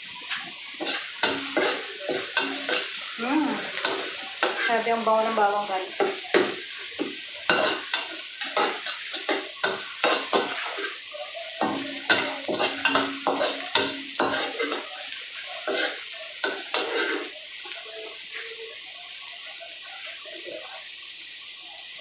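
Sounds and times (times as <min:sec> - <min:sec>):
garlic sizzling in oil: 0:00.0 - 0:22.0
spatula scraping a pan: 0:00.2 - 0:17.4.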